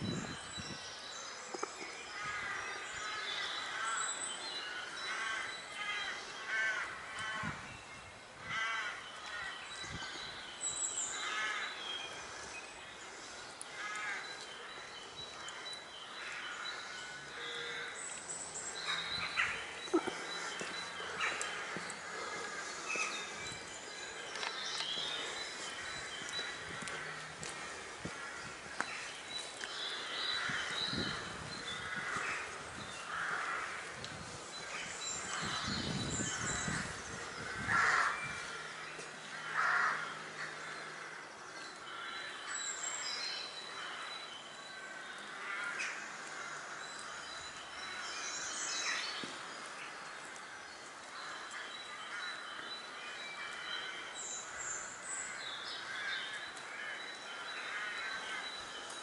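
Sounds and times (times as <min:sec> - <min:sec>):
small birds chirping: 0:00.0 - 0:59.0
crows cawing: 0:02.1 - 0:07.6, 0:08.4 - 0:09.5, 0:11.1 - 0:14.9, 0:16.2 - 0:18.1, 0:18.7 - 0:34.0, 0:36.6 - 0:42.6, 0:45.0 - 0:48.2, 0:53.4 - 0:58.6.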